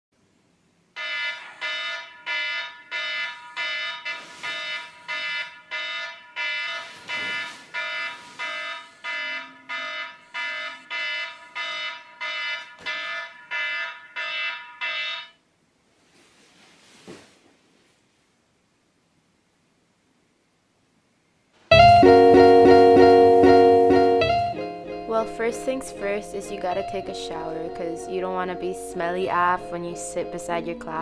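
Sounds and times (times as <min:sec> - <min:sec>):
alarm beeping: 0:01.0 - 0:15.4, 0:21.7 - 0:31.0.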